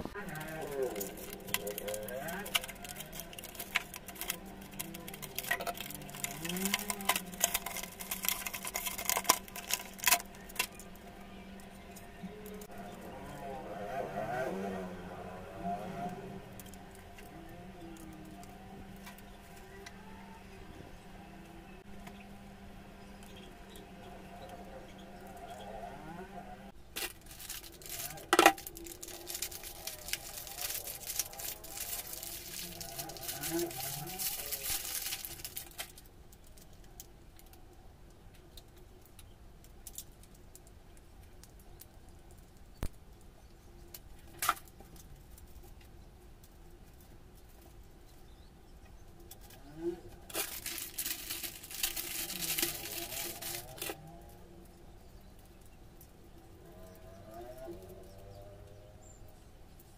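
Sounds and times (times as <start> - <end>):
plastic packaging crinkling: 0.0 - 12.7, 26.8 - 37.5, 50.2 - 54.4.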